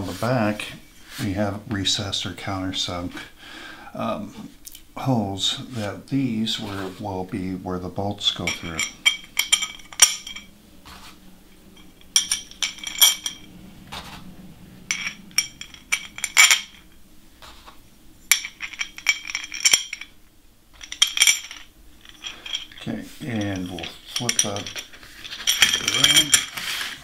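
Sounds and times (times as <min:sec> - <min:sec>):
metal bolts clinking on metal plate: 0:08.3 - 0:10.5, 0:11.8 - 0:13.5, 0:14.9 - 0:16.9, 0:18.3 - 0:20.2, 0:20.8 - 0:27.0.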